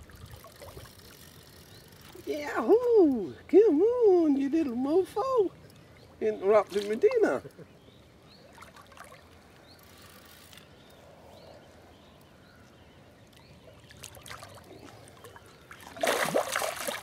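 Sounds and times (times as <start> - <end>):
fish thrashing and splashing: 13.9 - 17.0.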